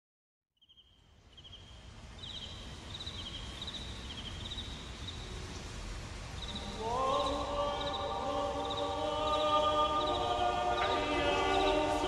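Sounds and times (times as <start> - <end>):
crickets chirping: 0.6 - 5.4, 6.1 - 12.0.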